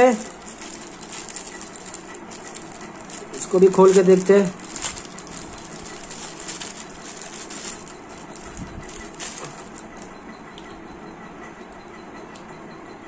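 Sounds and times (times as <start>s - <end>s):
plastic packet crinkling: 0.0s - 10.1s.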